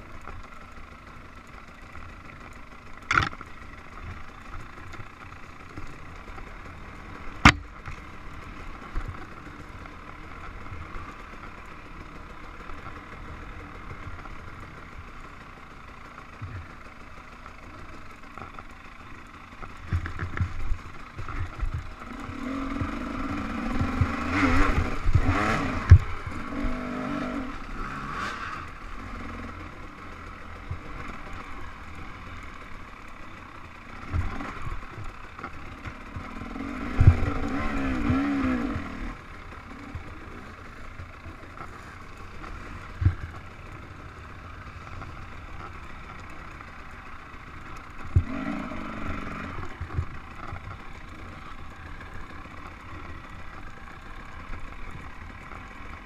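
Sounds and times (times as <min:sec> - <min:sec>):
dirt bike engine revving: 0:18.5 - 0:56.0.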